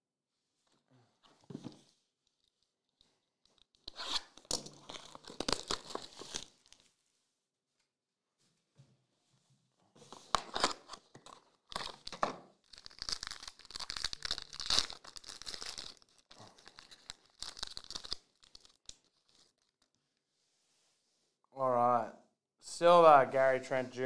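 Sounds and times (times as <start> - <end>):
foil wrapper tearing and crinkling: 4.4 - 6.8, 11.6 - 19.8.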